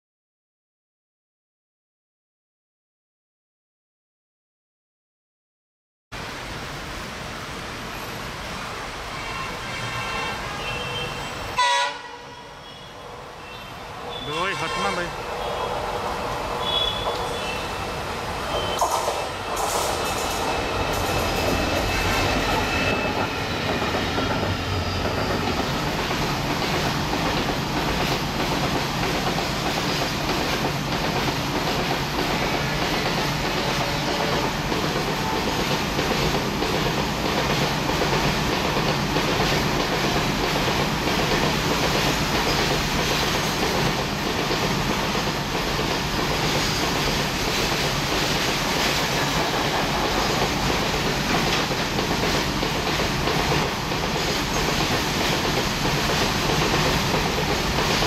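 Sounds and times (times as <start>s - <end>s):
train wheels clickety-clack: 14.2s - 17.7s, 18.5s - 58.0s.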